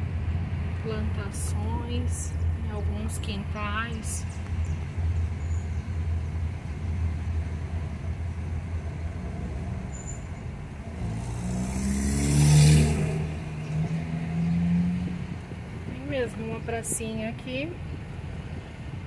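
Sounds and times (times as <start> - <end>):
car engine and road hum: 0.0 - 19.0
car accelerating: 7.4 - 15.8.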